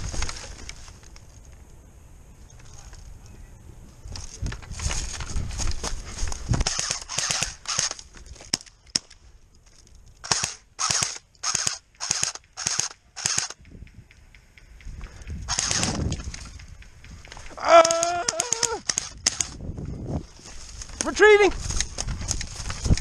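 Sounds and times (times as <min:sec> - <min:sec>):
rustling: 0:00.0 - 0:03.3, 0:03.9 - 0:13.6, 0:15.2 - 0:23.0
airsoft gun shots: 0:06.6 - 0:08.0, 0:10.2 - 0:13.6, 0:15.5 - 0:16.1.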